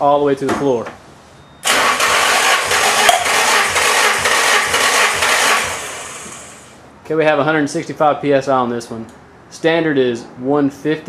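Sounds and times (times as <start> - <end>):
starter cranking engine: 1.6 - 6.7.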